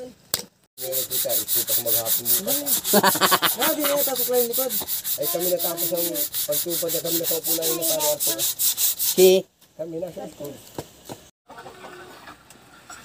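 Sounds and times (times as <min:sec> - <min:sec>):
hand rubbing wood: 0:00.8 - 0:09.3.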